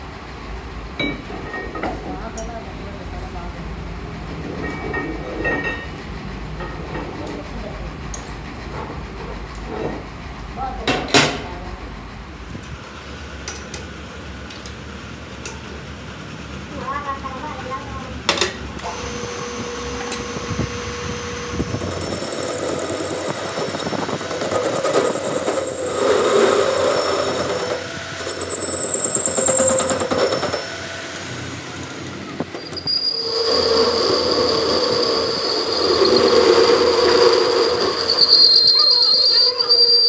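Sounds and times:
lathe cutting tool squealing: 0:18.8 - 0:40.0
lathe running: 0:18.8 - 0:40.0.

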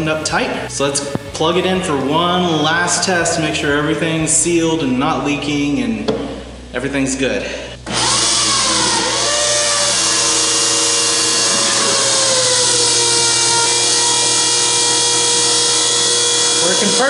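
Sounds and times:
electric pump whine: 0:07.4 - 0:17.0.

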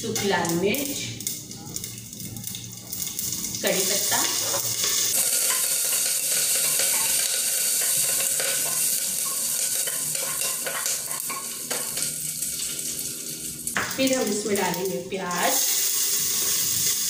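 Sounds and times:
spices sizzling in hot oil: 0:00.0 - 0:17.0.

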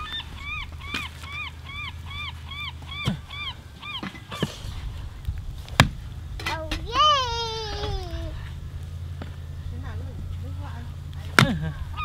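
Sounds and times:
bird calling short notes: 0:00.0 - 0:04.5
axe splitting firewood: 0:05.6 - 0:06.8, 0:11.3 - 0:11.7.

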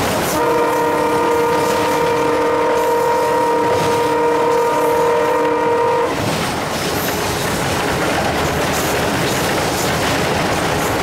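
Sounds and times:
wheels rattling over track: 0:00.0 - 0:11.0
locomotive horn: 0:00.3 - 0:06.2.

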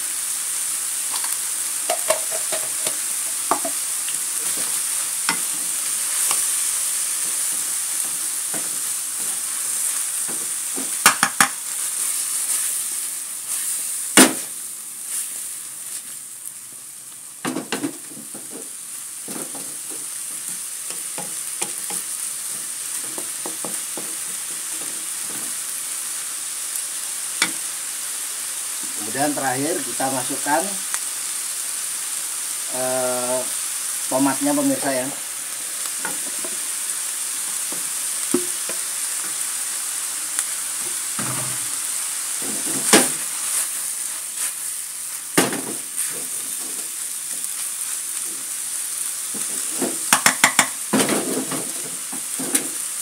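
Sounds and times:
food sizzling in a wok: 0:00.0 - 0:53.0
spatula knocking and scraping pan: 0:01.9 - 0:03.8, 0:04.4 - 0:06.5, 0:07.2 - 0:11.6, 0:17.5 - 0:25.6, 0:27.4 - 0:27.6, 0:37.7 - 0:39.4, 0:49.4 - 0:52.8.

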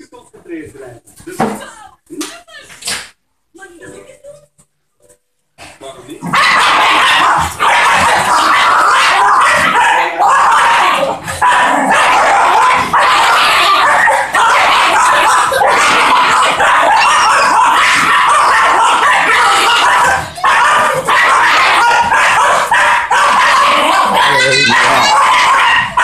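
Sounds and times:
dogs snarling and growling: 0:05.6 - 0:26.0.

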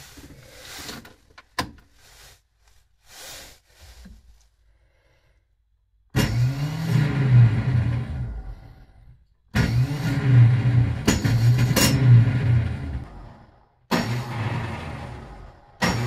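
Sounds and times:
engine electric starter whirring: 0:06.2 - 0:16.0.

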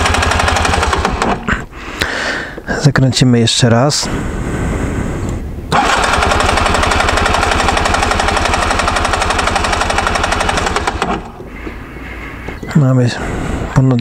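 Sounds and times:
engine cranking without firing: 0:00.0 - 0:01.7, 0:05.1 - 0:13.8.

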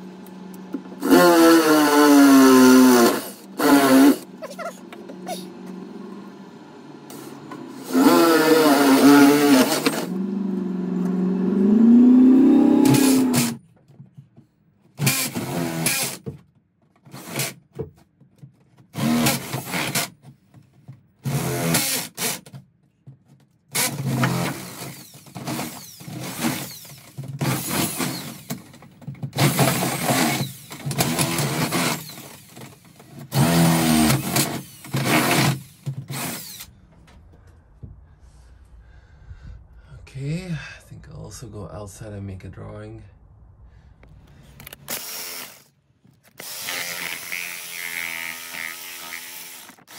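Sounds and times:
power drill boring into wood: 0:01.0 - 0:05.4, 0:07.1 - 0:10.2, 0:12.4 - 0:13.6, 0:15.0 - 0:16.3, 0:17.1 - 0:17.6, 0:19.0 - 0:20.2, 0:21.2 - 0:22.4, 0:23.7 - 0:28.7, 0:29.4 - 0:36.7, 0:44.6 - 0:49.9.

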